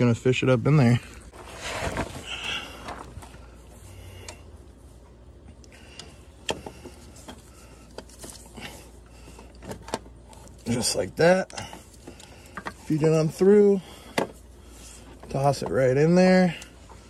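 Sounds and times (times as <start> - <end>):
rustling and scraping: 1.0 - 4.0, 6.5 - 13.3.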